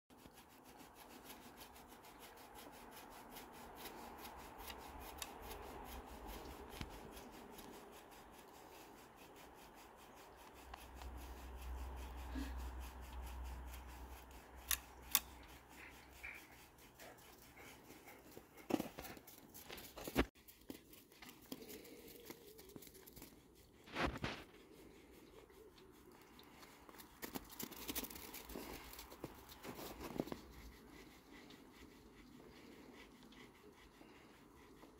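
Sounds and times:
rake rubbing through horse coat: 0.1s - 34.9s.

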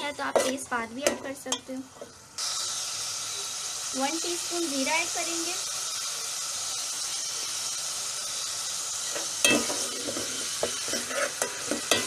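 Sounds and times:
hot oil sizzling in a pot: 0.0s - 12.0s
metal spoon clinking against pot: 9.4s - 9.9s.

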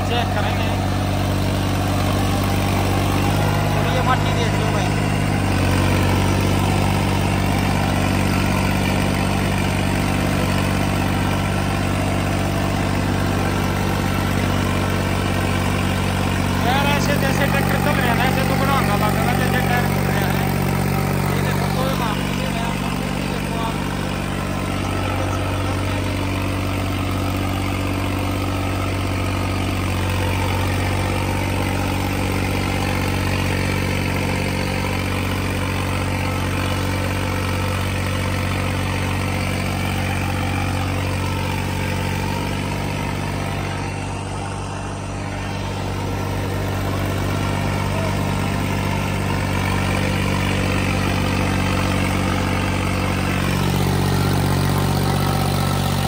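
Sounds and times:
tractor diesel engine under load: 0.0s - 56.0s
rotary blades churning soil: 46.8s - 56.0s.

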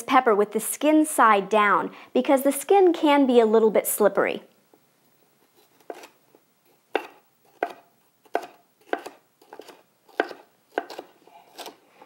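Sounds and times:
knife slicing on wooden board: 5.4s - 6.2s, 6.9s - 11.8s.

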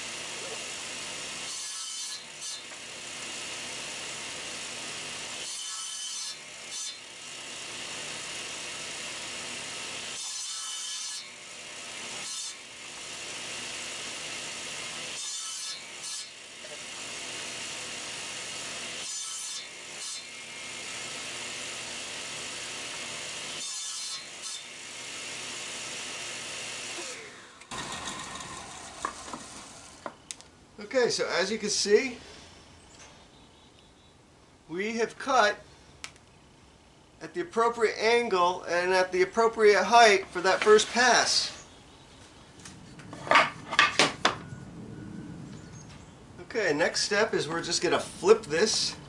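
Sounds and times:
table saw cutting wood: 0.0s - 30.2s, 43.1s - 44.4s.

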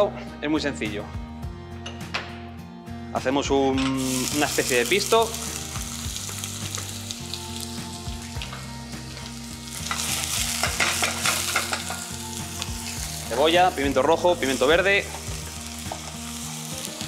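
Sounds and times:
vegetables sizzling in hot oil: 4.0s - 17.0s.

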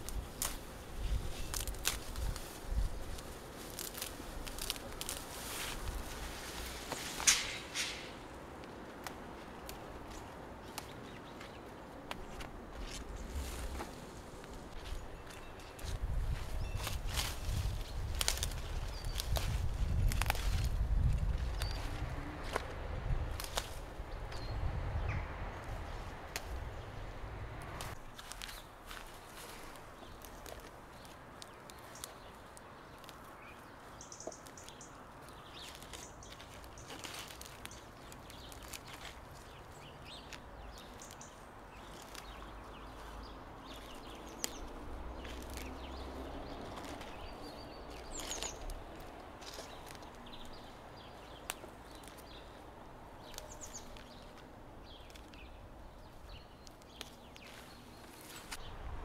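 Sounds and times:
stems snapping: 0.0s - 24.5s, 25.2s - 26.8s, 27.5s - 58.7s
leaves rustling: 0.0s - 59.0s
birds chirping: 9.6s - 19.6s, 21.4s - 22.8s, 23.4s - 58.9s.

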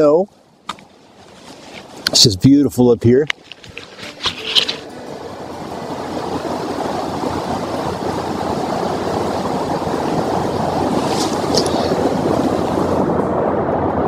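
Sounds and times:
creek rushing: 3.3s - 13.2s.

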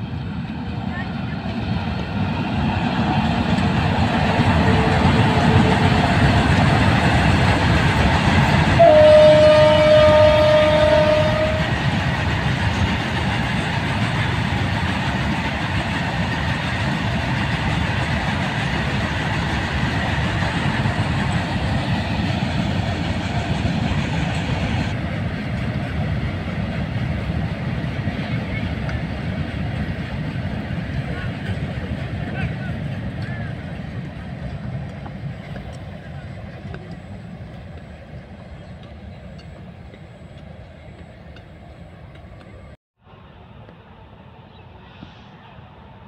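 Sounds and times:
wheels rumbling on rail: 0.0s - 46.0s
train horn: 4.6s - 6.1s, 8.7s - 11.8s.

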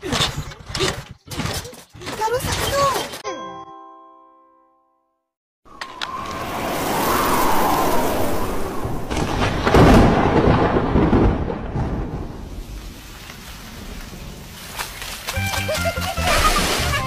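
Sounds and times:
thunder crack and rumble: 5.8s - 14.9s
rain: 5.8s - 17.0s.

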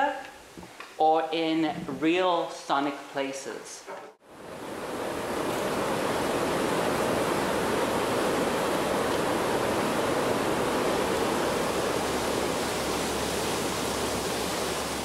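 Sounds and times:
water rushing through dam outlet: 4.3s - 15.0s.

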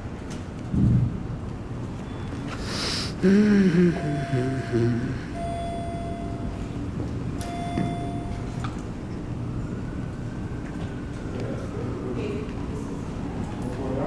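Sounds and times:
lobby background hum: 0.0s - 14.0s
faint steady tone: 3.2s - 8.8s.

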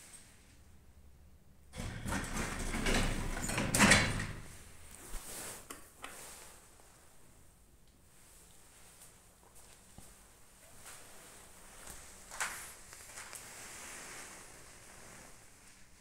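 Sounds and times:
elevator doors sliding closed: 1.8s - 4.6s.

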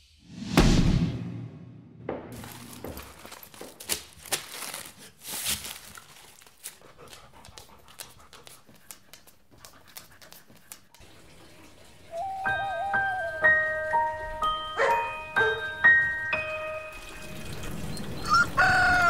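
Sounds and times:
dog claws clicking on wooden floor: 6.6s - 11.0s
dog panting: 6.7s - 11.6s.

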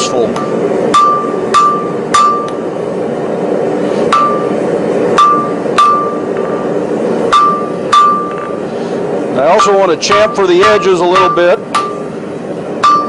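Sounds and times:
hammer clanging on hot steel: 0.0s - 2.6s, 4.1s - 6.7s, 7.3s - 8.6s, 9.4s - 13.0s.

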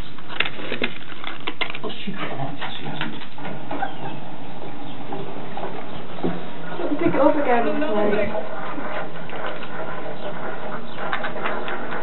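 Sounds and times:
cats crunching crisp food: 0.0s - 3.1s.

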